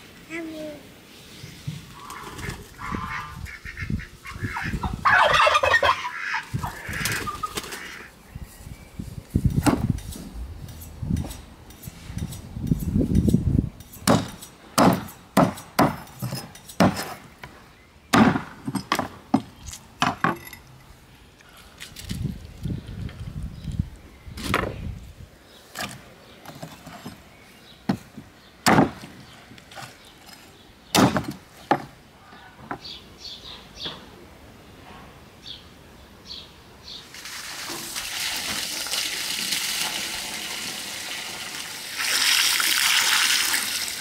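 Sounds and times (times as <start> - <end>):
farmyard fowl calling: 1.9 - 8.2
heavy knife chopping on wood: 14.0 - 17.1, 18.1 - 19.1.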